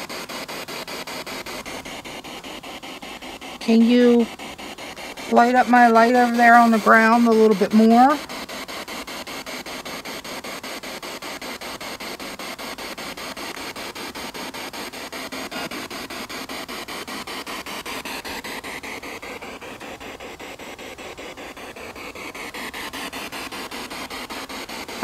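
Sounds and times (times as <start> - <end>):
radio static with rapid clicks: 0.0 - 25.0
faint wavering radio sound: 3.6 - 8.2.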